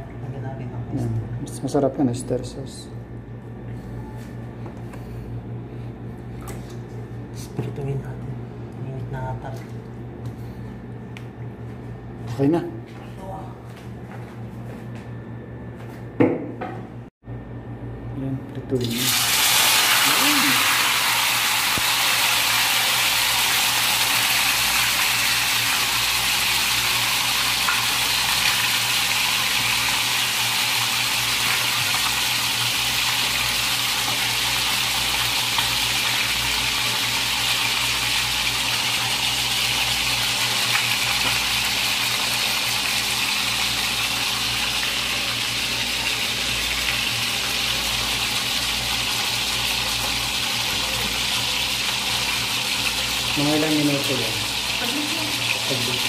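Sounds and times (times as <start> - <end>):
steady low hum: 0.0 - 18.8
chicken sizzling in hot oil: 18.8 - 56.0.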